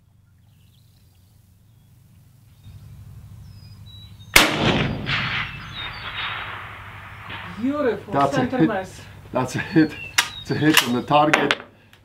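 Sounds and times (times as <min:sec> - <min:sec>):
rifle shot with long echo: 0:04.3 - 0:08.4.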